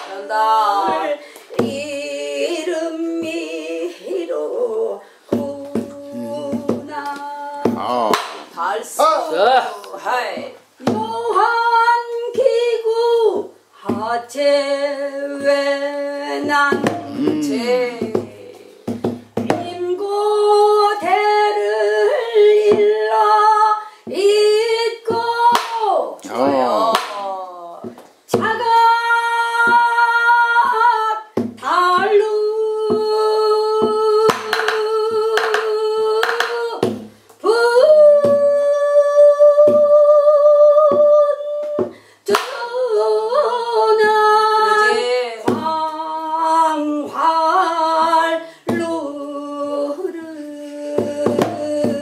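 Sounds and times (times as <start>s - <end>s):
person singing folk song: 0.0s - 8.8s, 10.4s - 52.0s.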